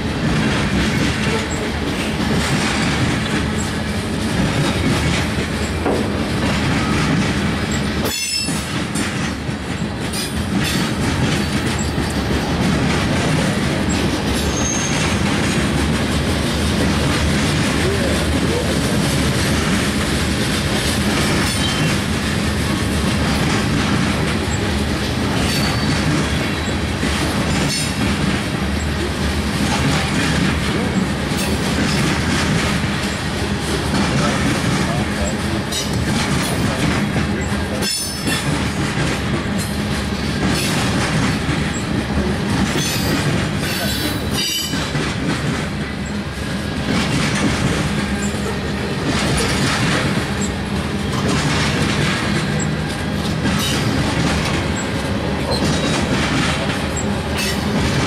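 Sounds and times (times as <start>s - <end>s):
clatter over rail joints: 0.0s - 58.0s
train wheels rumbling on rails: 0.0s - 58.0s
wheel squeals: 13.9s - 15.2s, 25.4s - 26.1s.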